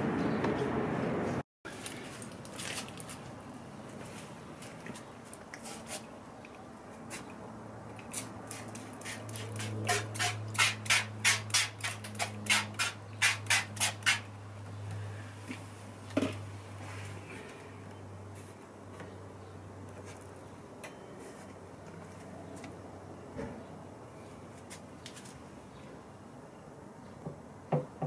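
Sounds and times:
spray bottle squirting: 8.0s - 14.2s
knock: 27.2s - 28.0s.

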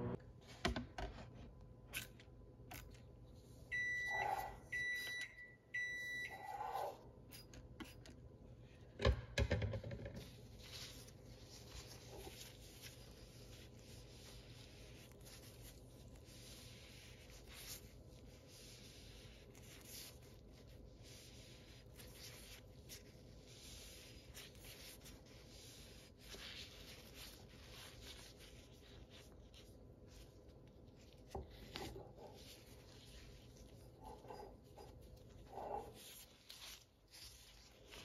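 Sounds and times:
towel rubbing wet vase: 10.2s - 38.0s.

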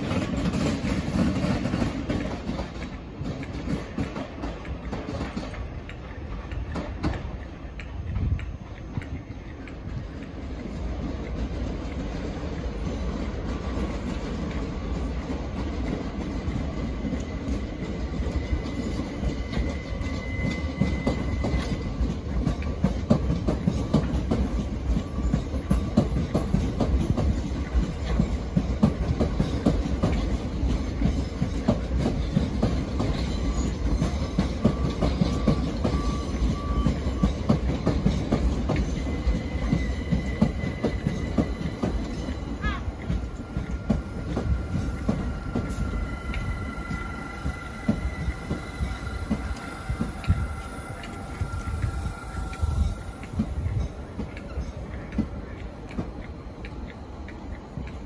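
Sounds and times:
train rumble: 0.0s - 58.0s
train wheels clattering: 0.0s - 58.0s
wheel squeal: 18.2s - 22.1s, 33.0s - 38.2s, 38.8s - 42.7s.

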